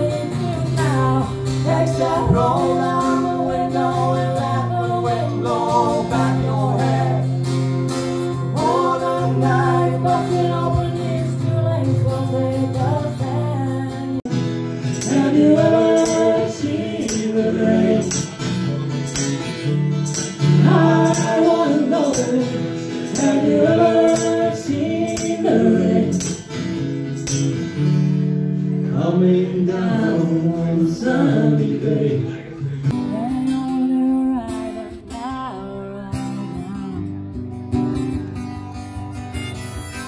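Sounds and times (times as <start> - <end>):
woman singing: 0.0 - 7.4, 8.3 - 14.3, 15.0 - 18.4, 20.5 - 26.4, 32.9 - 37.4
strummed acoustic guitar: 0.0 - 40.0
sharp high ticking beat: 14.8 - 27.7.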